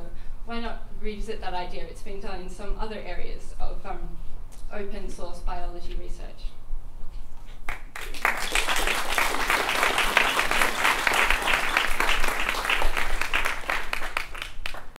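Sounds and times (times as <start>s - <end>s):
audience applauding: 7.7s - 15.0s.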